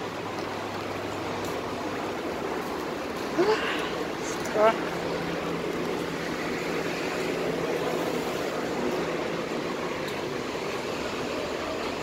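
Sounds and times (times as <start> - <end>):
passing traffic: 0.0 - 12.0.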